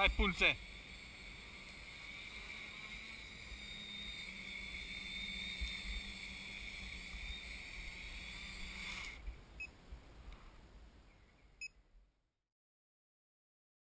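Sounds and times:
drone motors whining: 0:00.0 - 0:09.3.

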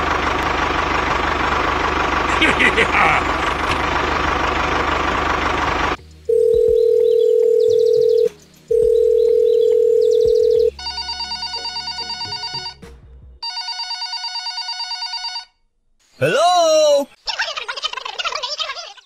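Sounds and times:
tractor engine: 0:00.0 - 0:10.7
telephone line tone beeps: 0:06.3 - 0:12.8, 0:13.4 - 0:15.5
trilling phone ringtone: 0:06.3 - 0:12.8, 0:13.4 - 0:15.6.

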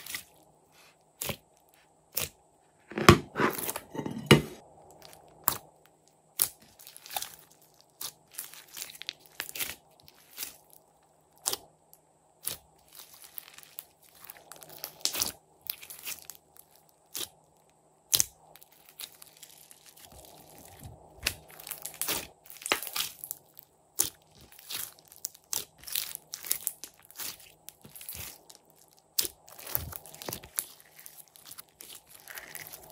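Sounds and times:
slime popping and crackling: 0:06.4 - 0:10.6, 0:12.4 - 0:16.4, 0:18.1 - 0:32.9.

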